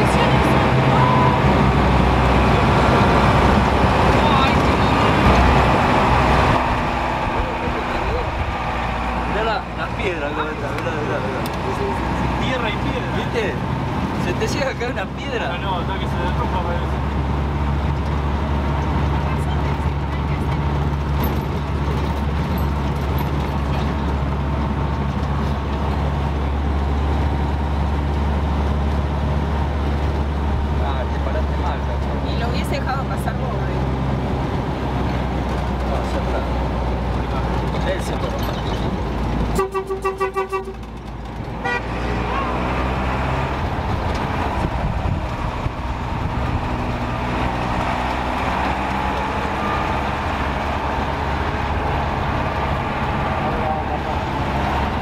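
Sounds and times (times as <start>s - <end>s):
road noise on dirt road: 0.0s - 55.0s
vehicle engine running: 0.0s - 55.0s.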